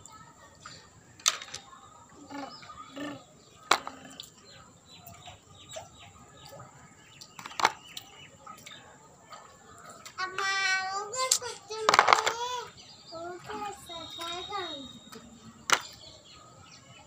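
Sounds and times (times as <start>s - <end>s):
loud sharp plastic clacks: 1.2s - 1.6s, 7.4s - 8.0s, 11.2s - 12.6s.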